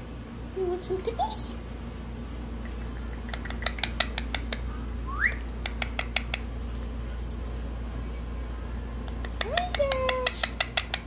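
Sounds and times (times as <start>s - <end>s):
parrot clicking: 2.6s - 4.7s, 5.3s - 6.5s, 9.1s - 11.0s
parrot rising whistle: 5.0s - 5.5s.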